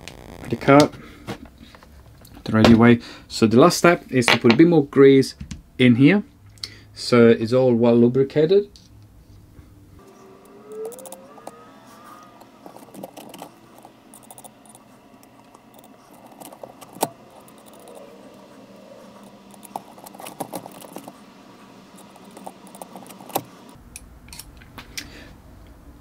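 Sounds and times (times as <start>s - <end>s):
small tool clicking on plastic parts: 22.0s - 25.1s.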